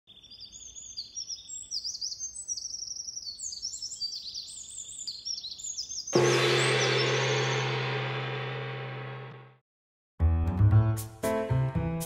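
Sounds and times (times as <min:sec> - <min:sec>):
small birds chirping and trilling: 0:00.1 - 0:07.7
gong ringing: 0:06.2 - 0:09.5.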